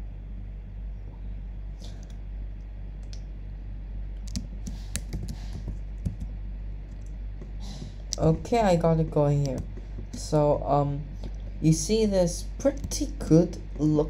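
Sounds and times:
steady low hum: 0:00.0 - 0:14.0
keyboard and mouse clicking: 0:04.2 - 0:06.3, 0:09.4 - 0:10.2.

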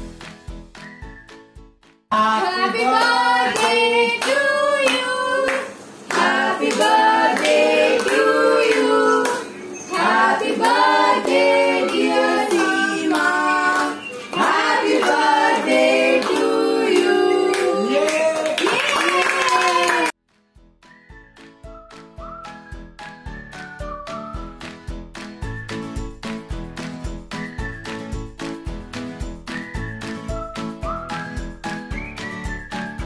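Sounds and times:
people singing together: 0:02.1 - 0:18.2
hands clapping in time: 0:03.0 - 0:09.4, 0:11.8 - 0:20.1.

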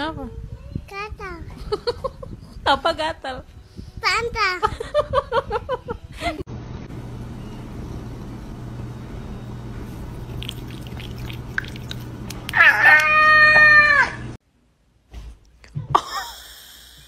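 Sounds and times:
low hum: 0:06.5 - 0:14.4
cat licking: 0:10.2 - 0:12.6
cat meowing: 0:12.6 - 0:14.2.

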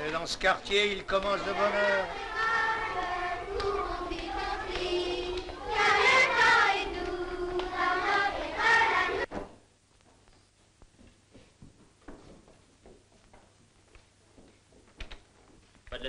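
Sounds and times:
children singing: 0:01.3 - 0:09.3.

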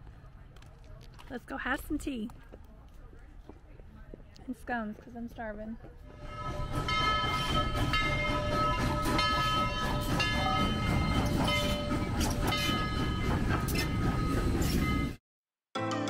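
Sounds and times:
steam locomotive rumbling past: 0:06.1 - 0:15.2
train clanking: 0:06.1 - 0:15.2.

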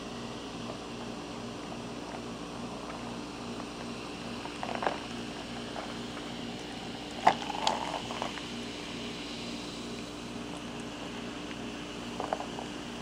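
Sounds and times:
steady low hum: 0:00.0 - 0:13.0
soda fizzing over ice: 0:07.1 - 0:08.4
ice clicking and crackling: 0:07.1 - 0:08.5.

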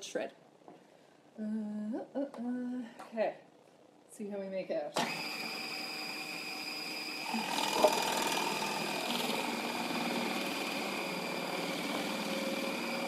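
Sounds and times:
food processor whining: 0:05.0 - 0:13.0.

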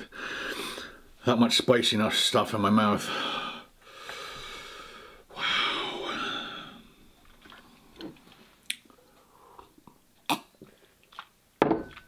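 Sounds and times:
wet mouth clicks: 0:08.6 - 0:08.9, 0:09.6 - 0:11.3.

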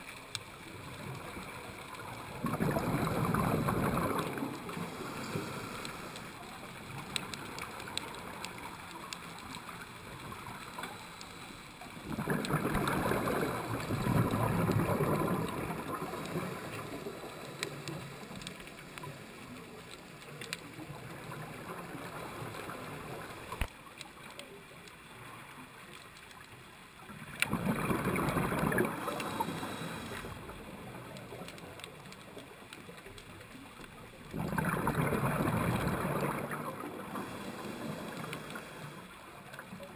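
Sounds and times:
steady underwater hiss: 0:00.0 - 0:39.9
exhaled bubbles rushing underwater: 0:00.6 - 0:10.8, 0:11.9 - 0:19.8, 0:27.0 - 0:32.6, 0:33.9 - 0:39.9.

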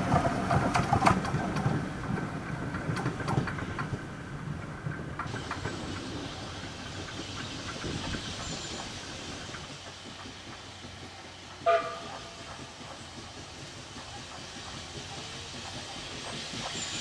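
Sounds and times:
distant steam train running: 0:00.0 - 0:17.0
rail clicks: 0:00.0 - 0:17.0
steady hiss: 0:05.0 - 0:17.0.

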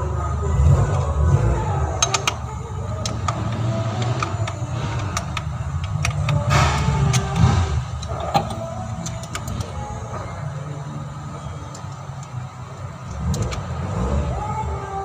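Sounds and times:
steady low rumble: 0:00.0 - 0:15.0
socket wrench metal clicks: 0:02.0 - 0:09.8, 0:13.0 - 0:13.7.

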